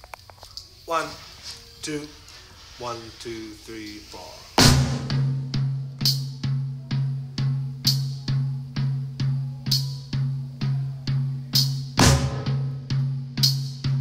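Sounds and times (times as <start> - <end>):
snare drum strokes: 0.9 - 6.6, 11.6 - 14.0
cymbal crash: 4.5 - 6.6, 11.6 - 14.0
bass drum booms: 4.6 - 14.0
marching percussion pop beat: 4.6 - 14.0.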